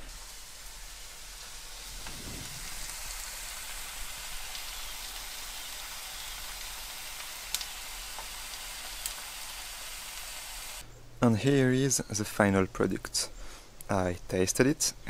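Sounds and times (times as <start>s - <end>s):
eggs sizzling in frying pan: 0.0s - 10.8s.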